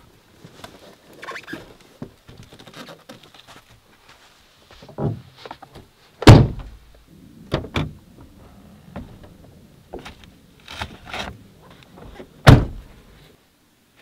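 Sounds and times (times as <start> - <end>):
heavy truck door shutting: 12.0 - 12.9.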